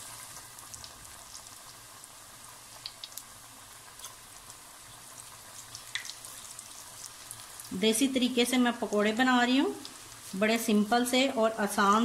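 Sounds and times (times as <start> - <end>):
deep-frying sizzle with crackles: 0.0 - 12.0.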